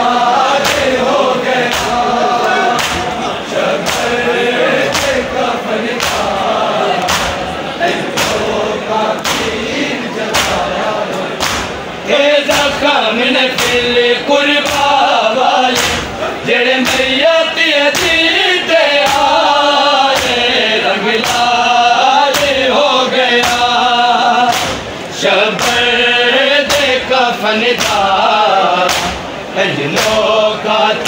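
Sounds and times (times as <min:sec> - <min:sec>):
men chanting in chorus: 0:00.0 - 0:31.0
hand slaps on chest: 0:02.8 - 0:03.1, 0:03.8 - 0:04.1, 0:07.0 - 0:07.4, 0:09.2 - 0:09.5, 0:10.3 - 0:10.6, 0:11.4 - 0:11.7, 0:15.7 - 0:16.1, 0:24.5 - 0:24.8, 0:28.9 - 0:29.2.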